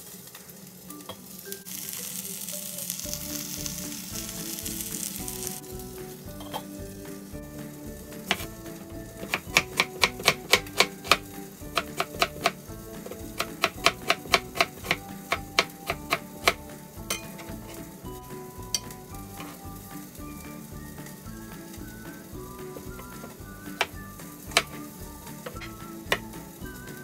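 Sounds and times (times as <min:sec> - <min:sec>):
food sizzling in a pan: 0:00.0 - 0:27.0
soft background music: 0:00.8 - 0:27.0
utensil clacking against pan: 0:09.2 - 0:17.9, 0:22.8 - 0:26.4.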